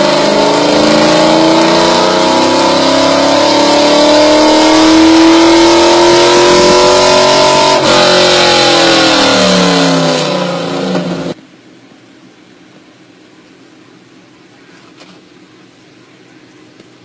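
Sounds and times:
car engine revving at full throttle: 0.0s - 11.4s.

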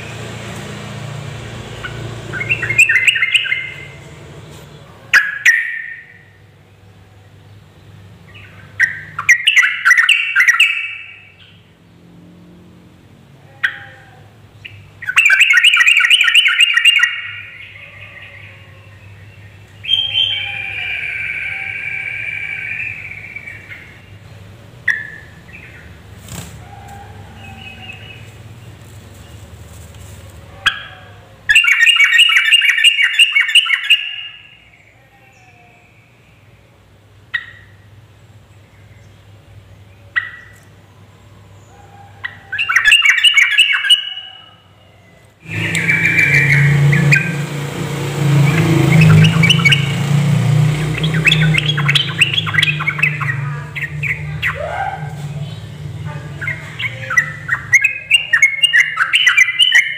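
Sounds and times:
bulbul calling and singing: 1.8s - 4.0s, 5.2s - 6.4s, 7.4s - 11.7s, 14.5s - 26.4s, 27.2s - 28.9s, 30.6s - 34.9s, 42.2s - 44.6s, 45.5s - 47.6s, 48.3s - 50.1s, 50.7s - 59.9s.

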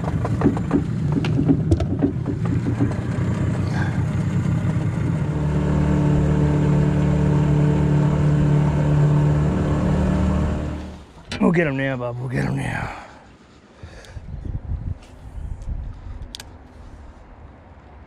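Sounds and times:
knocks and rattles: 0.0s - 5.3s
outboard motor running: 0.0s - 11.2s.

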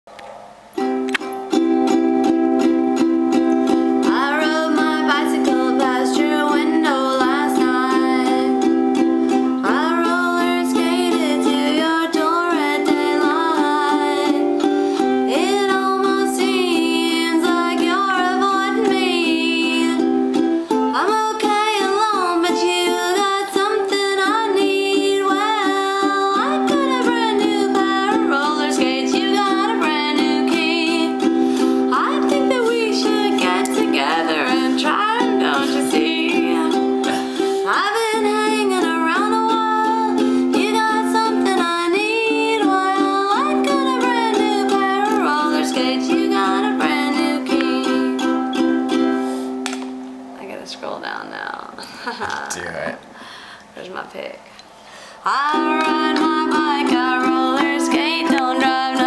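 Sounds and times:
mandolin strumming chords: 0.6s - 52.9s, 55.3s - 59.0s
woman singing: 2.4s - 49.2s, 55.2s - 59.0s.

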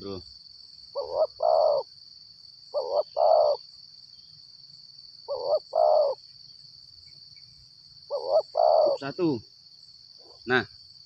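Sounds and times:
high insect drone: 0.0s - 11.0s
dove cooing: 1.0s - 1.9s, 2.7s - 3.6s, 5.3s - 6.2s, 8.1s - 9.1s.

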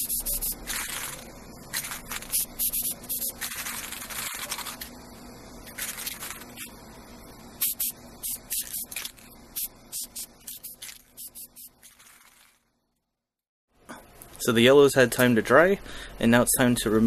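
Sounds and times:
spray paint can hissing: 0.0s - 4.9s, 5.6s - 6.7s, 7.5s - 12.7s.

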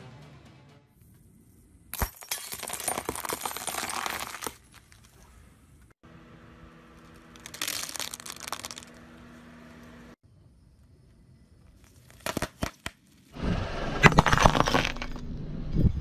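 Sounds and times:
glass bulb crunching under tyre: 1.9s - 5.2s, 7.0s - 9.0s, 11.9s - 13.0s, 14.0s - 15.2s
plastic crushed under tyre: 7.1s - 9.0s.

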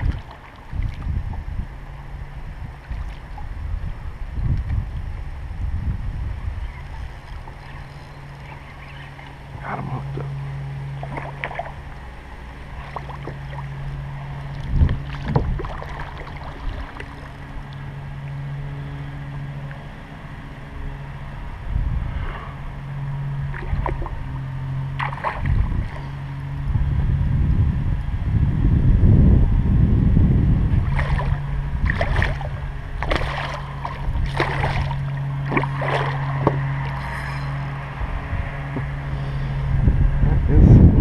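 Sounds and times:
fish splashing: 0.0s - 1.1s, 6.8s - 18.6s, 23.4s - 26.3s, 30.7s - 37.9s
low hum: 0.0s - 41.0s.

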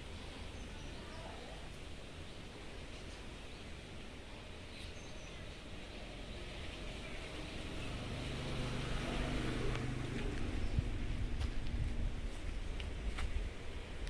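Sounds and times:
low rumble and hiss: 0.0s - 14.0s.

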